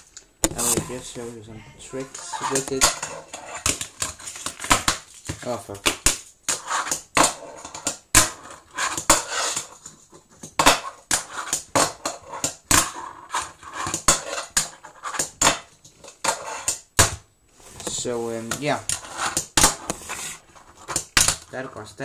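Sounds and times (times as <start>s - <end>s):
fingerboard wheels rolling: 6.6s - 9.8s, 18.9s - 21.4s.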